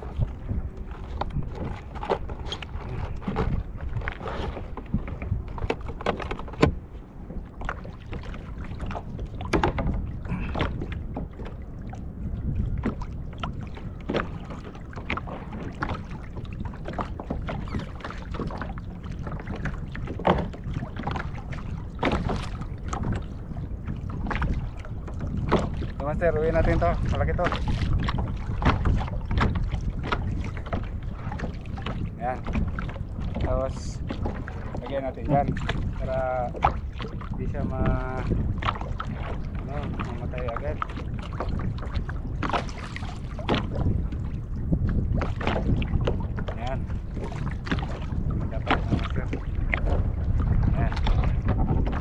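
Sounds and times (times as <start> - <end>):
knocks and clatter on kayak: 0.0 - 52.0.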